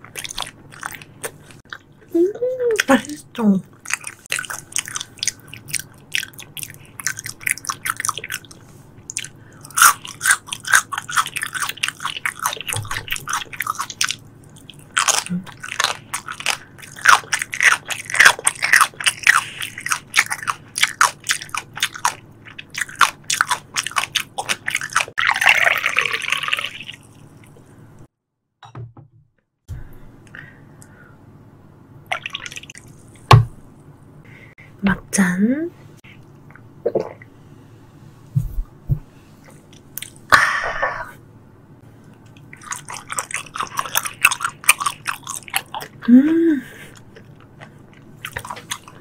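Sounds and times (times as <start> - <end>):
wet chewing mouth sounds: 3.7 - 25.2, 42.3 - 46.3, 46.9 - 49.0.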